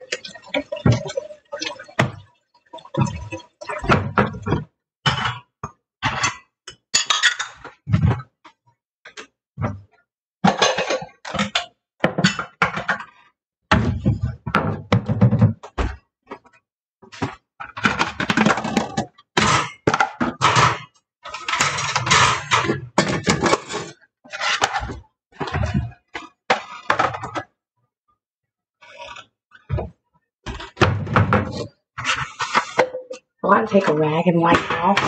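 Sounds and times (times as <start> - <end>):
dishes clinking and clattering: 3.8 - 8.2, 10.4 - 13.2.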